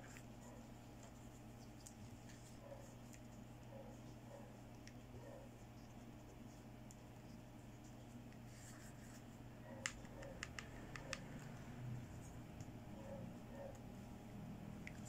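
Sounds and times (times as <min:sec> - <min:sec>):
faint room hum: 0:00.0 - 0:15.0
fingernails clicking on plastic: 0:09.8 - 0:11.5.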